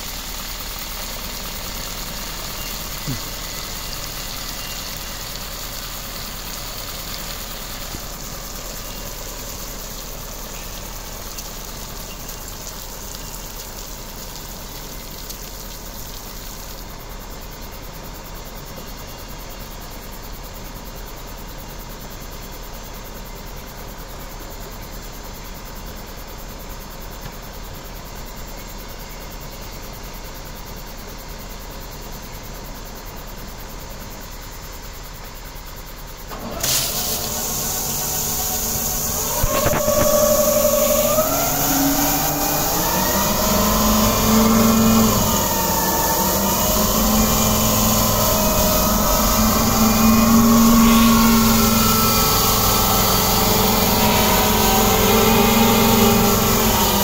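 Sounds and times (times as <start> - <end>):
diesel truck engine idling: 0.0 - 15.1, 36.1 - 57.0
water spraying hiss: 0.0 - 18.8, 36.3 - 57.0.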